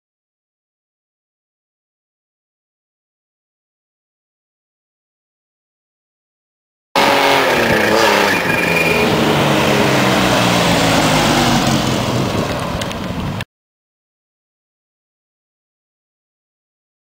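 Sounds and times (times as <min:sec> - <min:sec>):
loud car engine driving off: 0:07.0 - 0:13.4.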